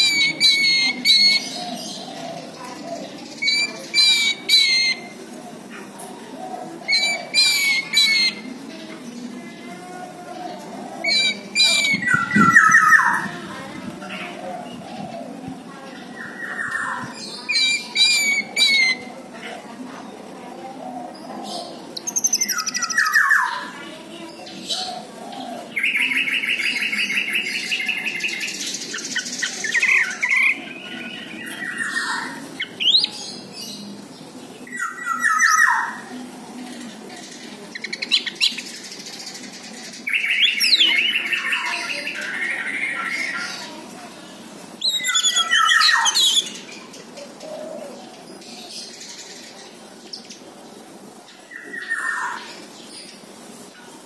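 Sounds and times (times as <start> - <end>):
thrush singing whistles and trills: 3.3 - 5.2, 6.9 - 8.5, 11.0 - 13.3, 16.2 - 19.1, 22.0 - 23.7, 44.8 - 46.8.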